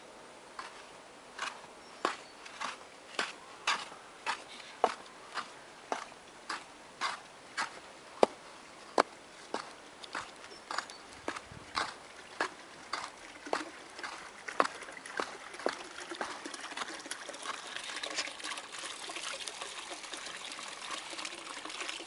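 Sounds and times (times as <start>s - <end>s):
trickle of water: 10.0s - 22.0s.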